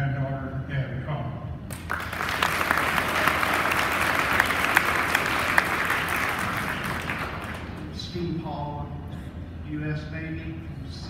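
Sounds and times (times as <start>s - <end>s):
audience applauding: 1.7s - 7.9s.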